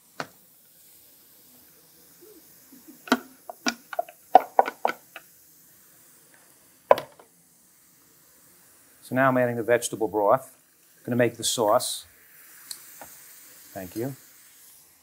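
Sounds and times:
spoon knocking on skillet: 3.1 - 5.3, 6.9 - 7.2.

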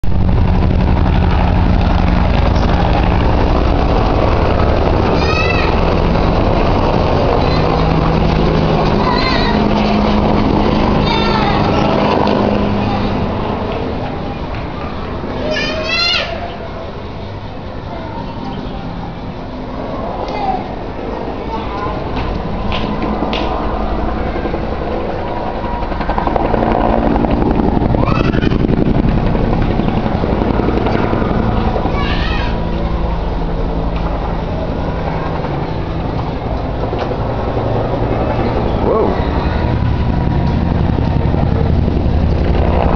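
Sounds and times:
distant helicopter drone: 0.0 - 42.9.

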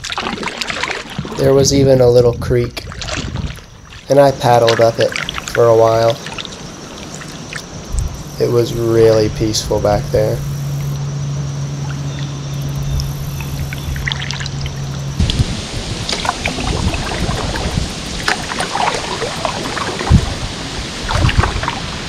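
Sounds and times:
water dripping off paddle: 0.0 - 1.4, 2.7 - 8.3, 11.8 - 22.0
paddle strokes in water: 0.0 - 8.8, 11.8 - 22.0
steady low hum: 0.0 - 22.0.

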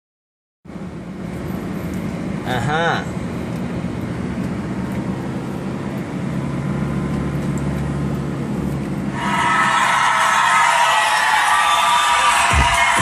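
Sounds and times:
car cabin road rumble: 0.7 - 13.0
crowd cheering: 9.1 - 13.0
loud music: 9.1 - 13.0.

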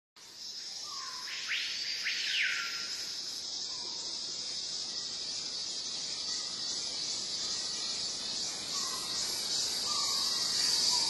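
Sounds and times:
high-pitched insect chorus: 0.2 - 11.0
bird whistled call: 0.9 - 2.9.

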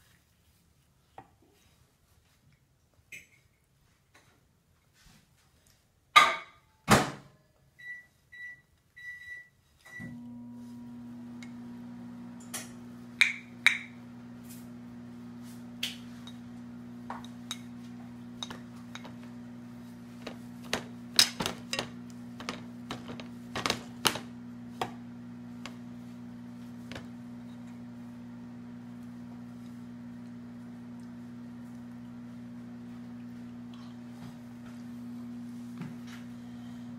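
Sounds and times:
microwave oven humming: 9.9 - 36.9
spoon clinking bowl: 16.2 - 16.5.

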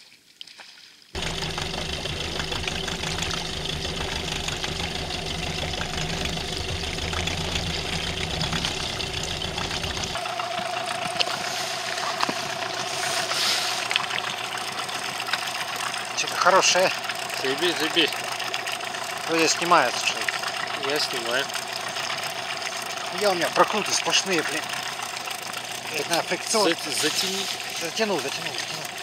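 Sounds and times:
wind: 0.0 - 29.0
high steady whine: 1.2 - 20.2
outboard motor running: 1.2 - 29.0
water noise: 1.2 - 29.0.

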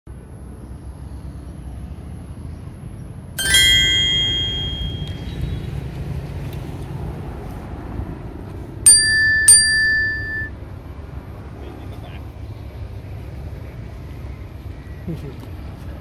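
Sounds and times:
small metal bell ringing: 3.4 - 5.5, 8.9 - 10.5.

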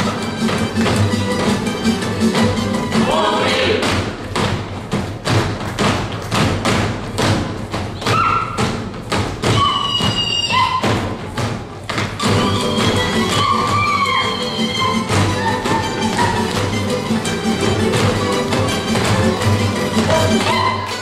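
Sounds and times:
folk string band playing: 0.0 - 3.8, 12.2 - 21.0
boots stamping on wooden stage: 0.0 - 21.0.

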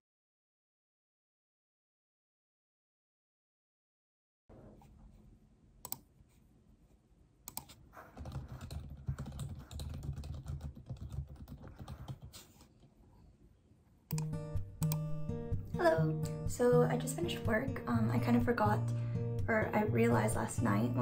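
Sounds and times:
computer keyboard key clicks: 7.5 - 12.3, 14.1 - 15.0.

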